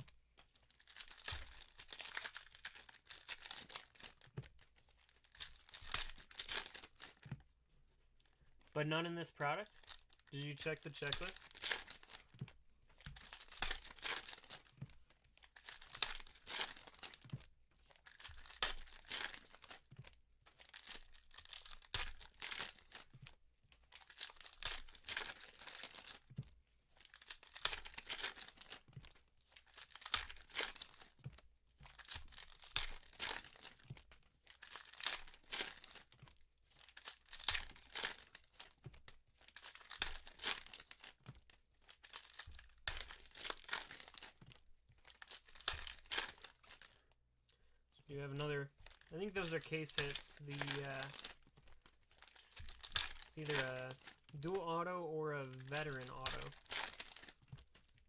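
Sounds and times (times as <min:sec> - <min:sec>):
foil wrappers tearing and crinkling: 0:00.0 - 0:07.3, 0:09.2 - 0:47.0, 0:48.3 - 0:58.0.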